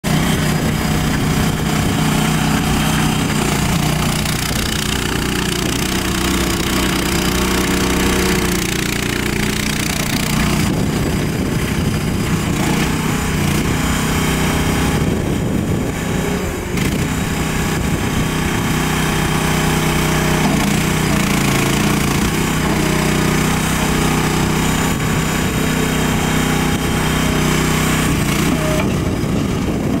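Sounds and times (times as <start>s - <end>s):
small engine running: 0.0s - 30.0s.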